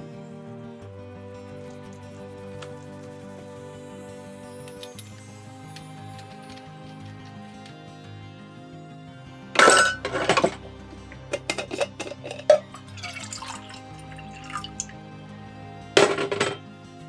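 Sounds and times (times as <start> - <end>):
background music: 0.0 - 17.0
water poured between metal cups: 1.6 - 3.1, 9.6 - 14.9
metal mugs clinking and scraping: 9.6 - 14.9, 16.0 - 16.6.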